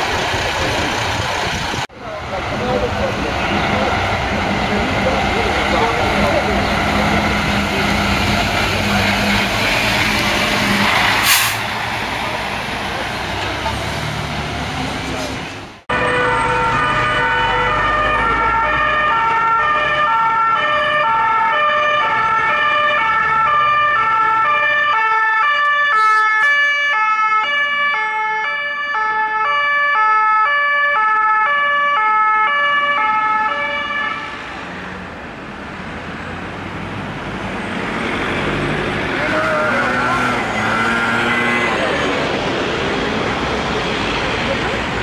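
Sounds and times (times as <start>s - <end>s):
passing engine: 0.0s - 27.1s, 31.7s - 45.0s
road traffic: 0.0s - 45.0s
two-tone emergency siren: 15.9s - 34.5s.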